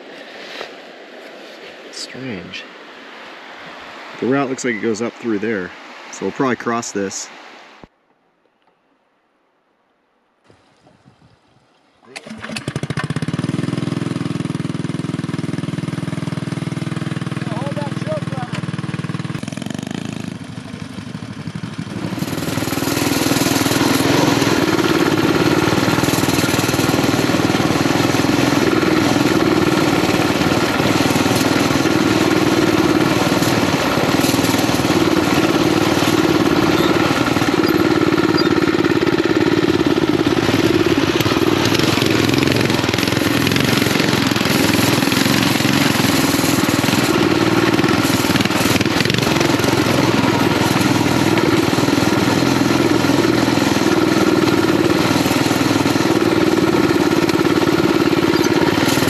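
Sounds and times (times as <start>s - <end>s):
mini bike engine running: 12.2s - 59.0s
tyres rolling over gravel: 22.1s - 59.0s.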